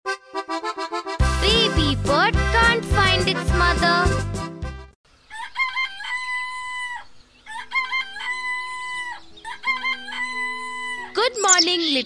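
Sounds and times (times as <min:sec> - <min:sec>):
bouncy children's music: 0:00.1 - 0:04.9
rooster crowing: 0:05.2 - 0:11.1.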